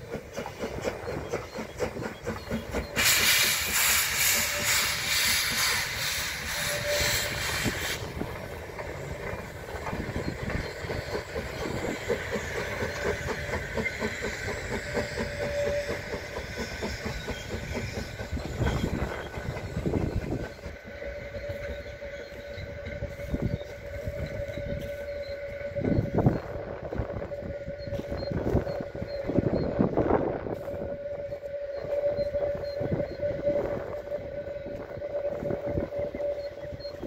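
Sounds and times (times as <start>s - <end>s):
rhythmic beat of moving train: 0.0s - 37.0s
loud hiss of steam: 0.2s - 20.6s.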